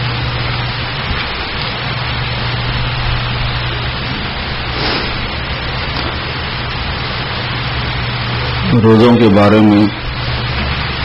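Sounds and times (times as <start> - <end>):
low hum: 0.0 - 8.8
steady hiss: 0.0 - 11.0.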